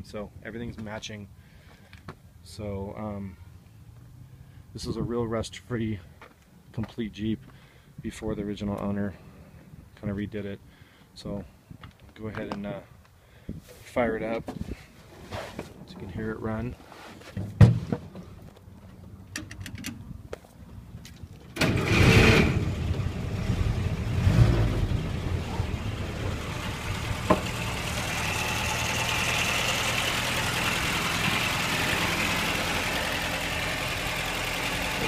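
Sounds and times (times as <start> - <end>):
engine starting and idling: 21.5 - 35.0.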